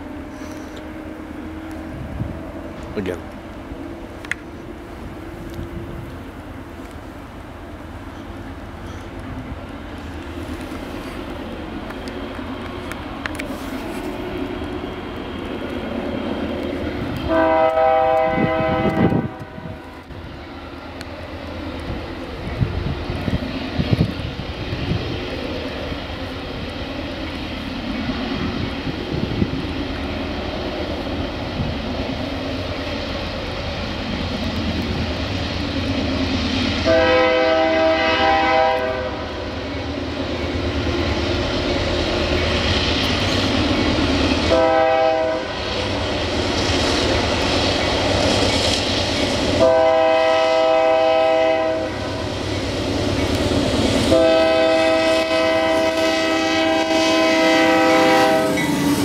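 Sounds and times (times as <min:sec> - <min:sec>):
low train rumble: 0:00.0 - 0:59.0
distant locomotive horn blasts: 0:17.1 - 0:20.1, 0:36.8 - 0:39.6, 0:44.4 - 0:45.7, 0:49.6 - 0:52.4, 0:54.1 - 0:59.0.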